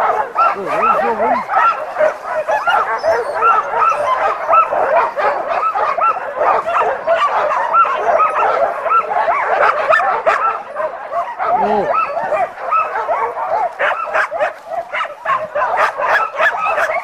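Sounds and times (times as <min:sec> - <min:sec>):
dogs barking and yelping: 0:00.0 - 0:17.0.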